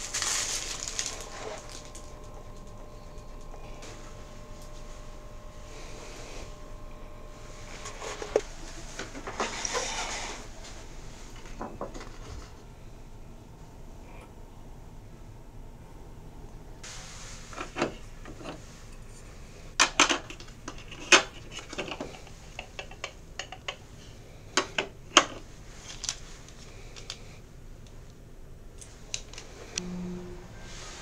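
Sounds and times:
short low tone: 29.8 - 31.0.

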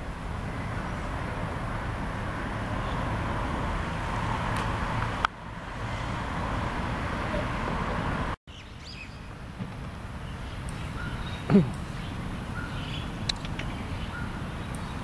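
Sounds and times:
outdoor background rumble: 0.0 - 15.0.

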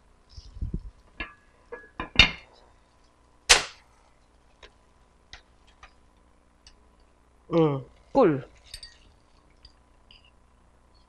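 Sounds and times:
glass bowls and utensils knocking: 8.6 - 10.3.

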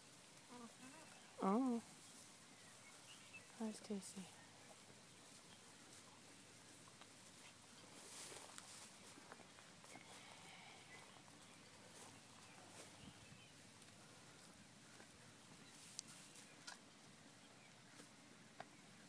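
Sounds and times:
alpacas chewing hay: 0.0 - 16.9.

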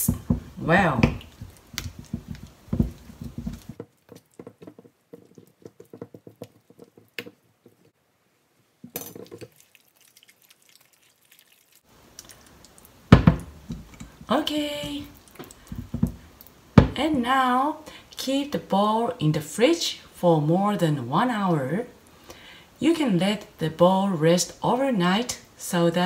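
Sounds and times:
wet squelching of mixed meat: 1.2 - 4.4, 9.4 - 13.1.

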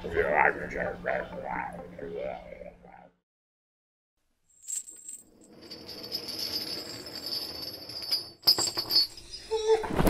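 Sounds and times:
metal chains rattling: 4.6 - 9.6.

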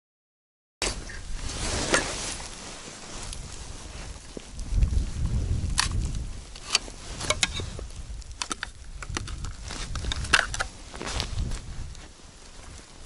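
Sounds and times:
ice auger clicks and knocks: 8.4 - 10.7.

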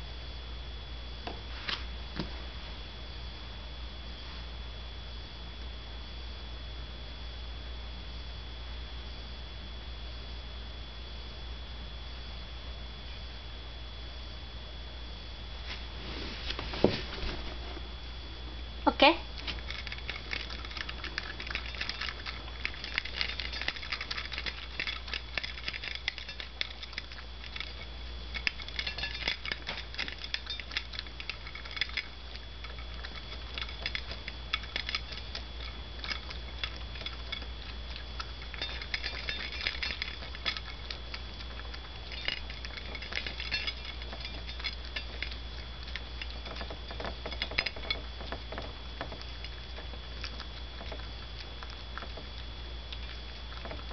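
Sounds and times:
puppy eating from metal bowl: 19.0 - 53.9.

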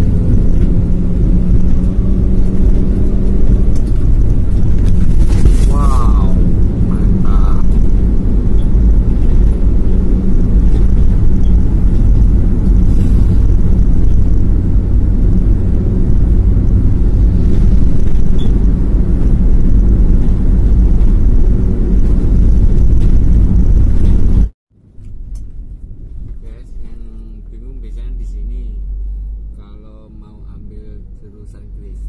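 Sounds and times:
wind and road noise: 0.0 - 32.0.

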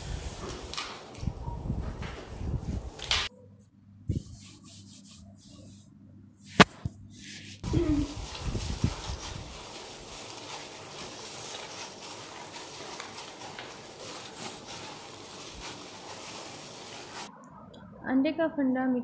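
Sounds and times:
wet squelches of kneading meat: 7.6 - 17.3.

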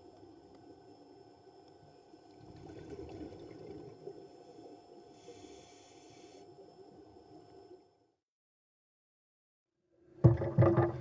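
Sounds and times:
muffled underwater water noise: 0.0 - 8.1, 10.2 - 11.0
faint steady hum: 0.0 - 8.2.

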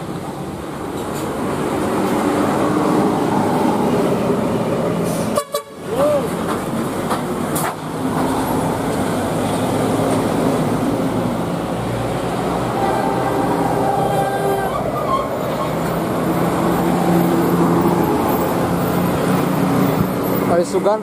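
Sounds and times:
buses passing: 0.0 - 21.0
bus musical air horns: 5.0 - 6.0, 12.5 - 16.1.

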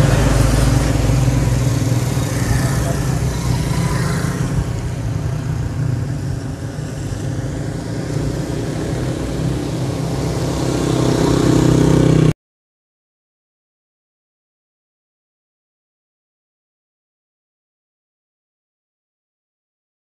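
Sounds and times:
small motorcycle engines passing: 0.0 - 12.3.

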